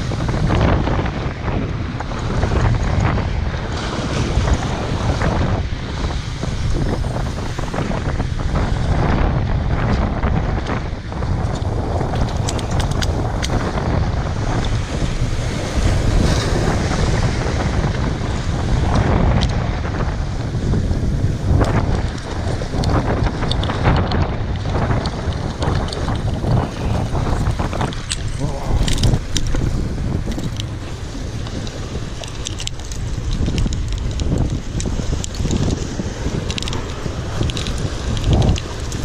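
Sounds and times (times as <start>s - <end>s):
waves breaking against concrete: 0.0s - 39.0s
wind buffeting microphone: 0.0s - 39.0s.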